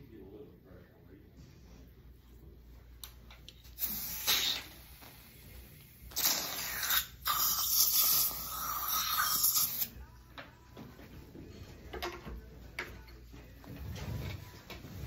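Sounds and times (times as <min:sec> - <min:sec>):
dental instrument spray hissing: 0:03.7 - 0:10.0.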